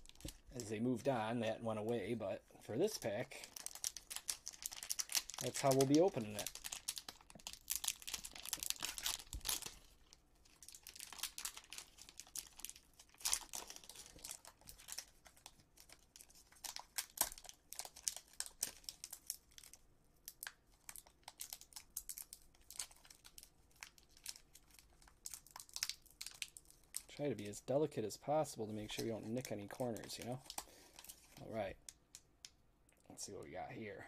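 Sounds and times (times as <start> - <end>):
plastic wrapper crinkling and tearing: 0.0 - 1.2, 2.8 - 27.7, 28.4 - 32.3.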